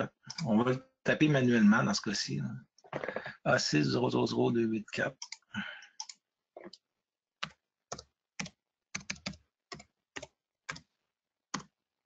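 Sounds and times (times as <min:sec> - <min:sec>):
computer keyboard keystrokes: 0:07.4 - 0:10.9.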